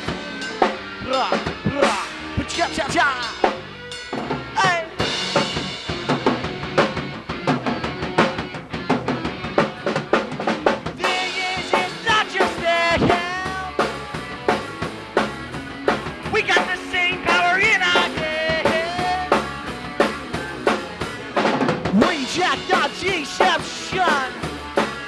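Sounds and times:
drum kit beat: 0:00.0 - 0:25.0
electric guitar and bass: 0:00.0 - 0:25.0
person singing wordless vocals: 0:01.0 - 0:03.4, 0:11.0 - 0:13.8, 0:16.3 - 0:19.4, 0:22.0 - 0:24.4.

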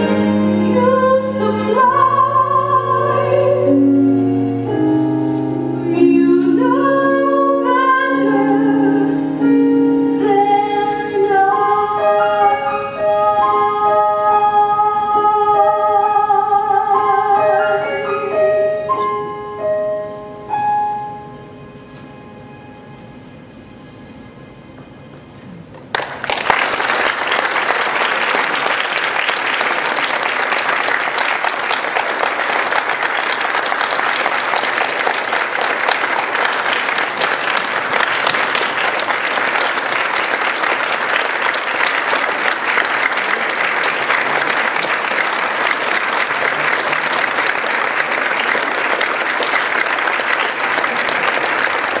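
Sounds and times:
audience applauding: 0:25.7 - 0:52.0.

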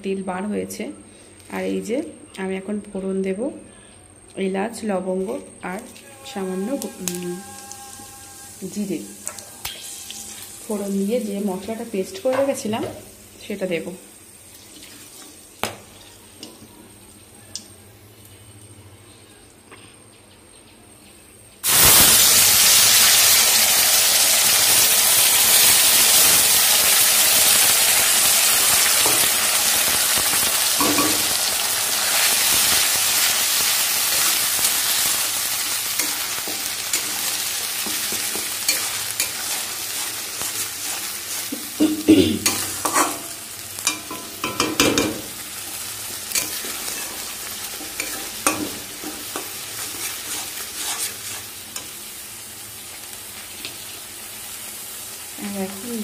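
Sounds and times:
paste sizzling in hot oil: 0:06.1 - 0:16.3, 0:21.6 - 0:56.0
spatula scraping a pan: 0:36.0 - 0:41.8, 0:42.4 - 0:44.4, 0:46.3 - 0:52.0.

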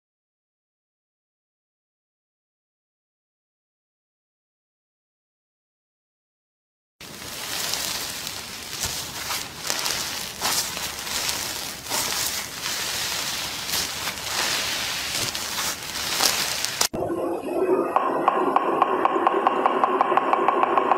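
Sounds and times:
crunchy slime crackling: 0:07.0 - 0:17.0.

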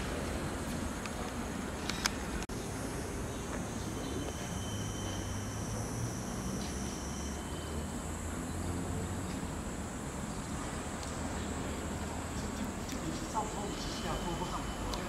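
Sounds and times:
high insect-like buzz: 0:03.7 - 0:10.9.

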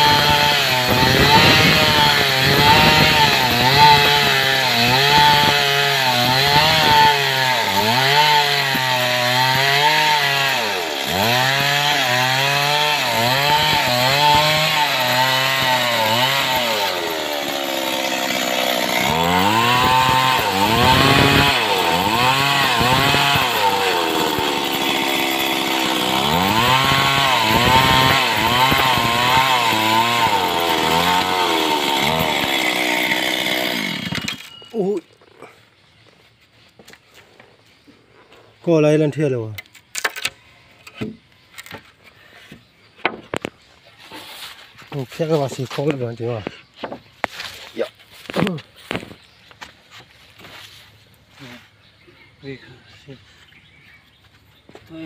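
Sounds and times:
chainsaw cutting log: 0:00.0 - 0:35.0.

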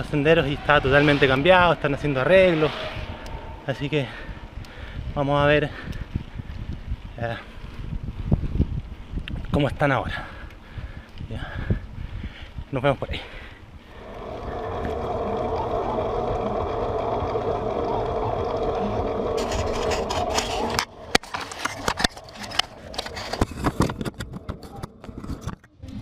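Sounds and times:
steady mechanical buzz: 0:13.9 - 0:23.5.

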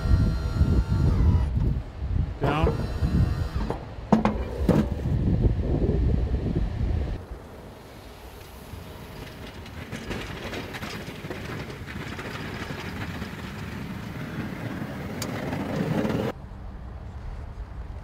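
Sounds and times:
snow plow pushing snow: 0:07.2 - 0:16.4.

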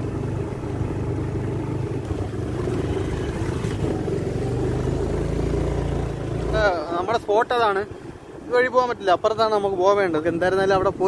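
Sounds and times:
motorbike engine running: 0:00.0 - 0:07.1.

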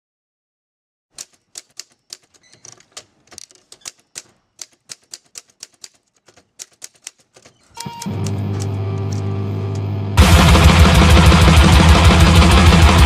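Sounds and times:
heavy metal music: 0:08.0 - 0:13.0.

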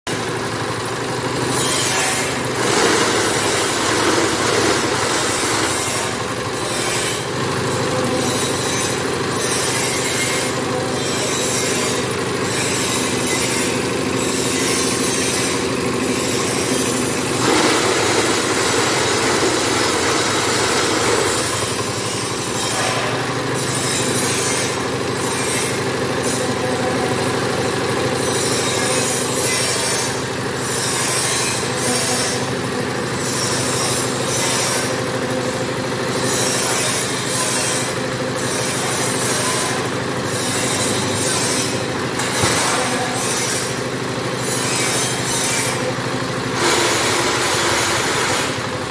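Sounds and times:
diesel engine running: 0:00.1 - 0:48.9
concrete mix rattling and scraping: 0:01.5 - 0:09.3, 0:13.0 - 0:23.3.

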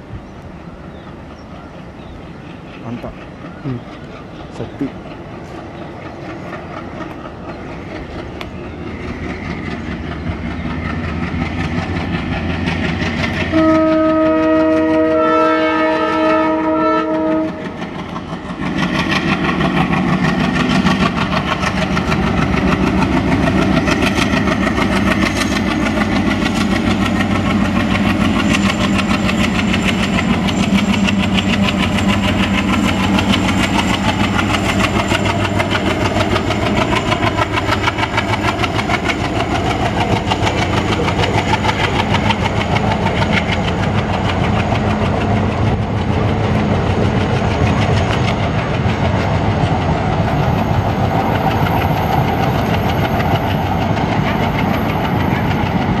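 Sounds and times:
diesel locomotive chugging: 0:00.0 - 0:56.0
train wheels clattering: 0:01.1 - 0:56.0
train horn blast: 0:13.5 - 0:17.8.

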